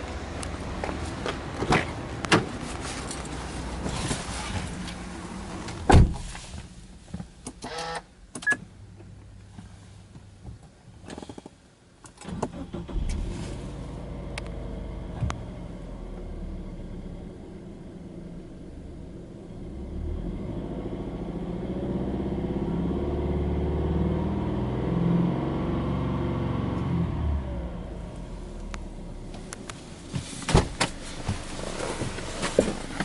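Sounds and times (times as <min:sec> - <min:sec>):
car door shutting: 0:05.6 - 0:06.6, 0:29.3 - 0:33.0
engine starter cranking: 0:12.1 - 0:13.2.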